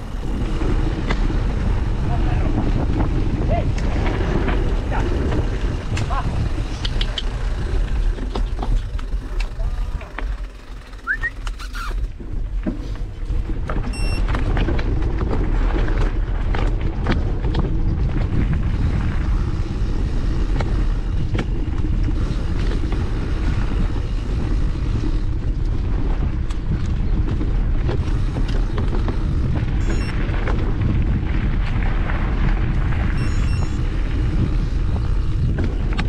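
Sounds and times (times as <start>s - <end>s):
bike rattling and knocking: 0.0s - 36.0s
tyres rumbling over ground: 0.0s - 36.0s
wind buffeting microphone: 0.0s - 36.0s
short high beep: 33.2s - 33.8s.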